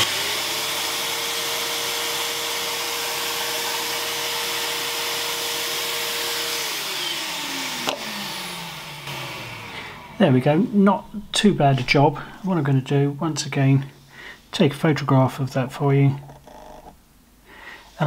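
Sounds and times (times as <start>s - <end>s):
vacuum cleaner rushing hiss: 6.4s - 12.5s.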